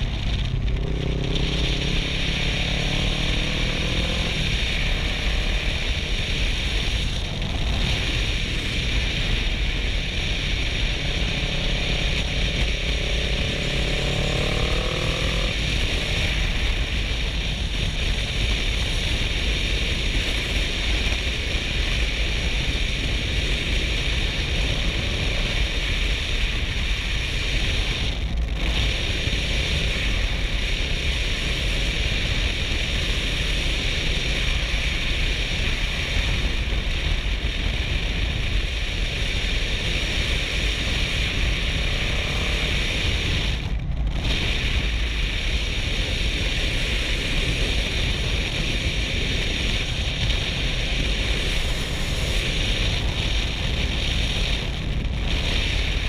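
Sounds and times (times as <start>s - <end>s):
motorcycle engine running: 0.0s - 56.0s
wind rushing over microphone: 0.0s - 56.0s.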